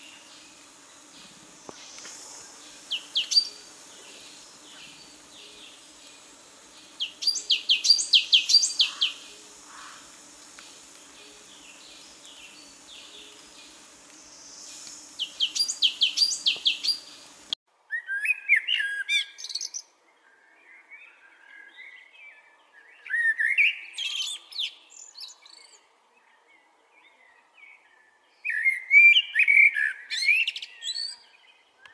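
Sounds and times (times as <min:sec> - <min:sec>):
warbling birdsong: 0:00.0 - 0:17.6
quiet bird twittering: 0:00.0 - 0:26.3.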